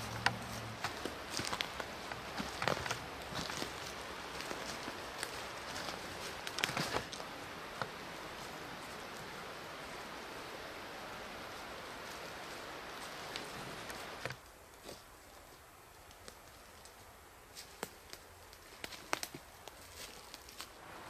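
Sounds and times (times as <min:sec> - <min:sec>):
footsteps crunching dry leaves: 0:00.0 - 0:07.4, 0:18.6 - 0:20.8
background hiss: 0:00.0 - 0:21.0.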